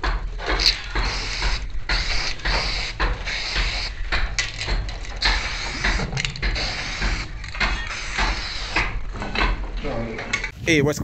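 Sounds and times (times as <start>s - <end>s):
spray paint can hissing: 1.0s - 4.0s, 5.2s - 9.0s.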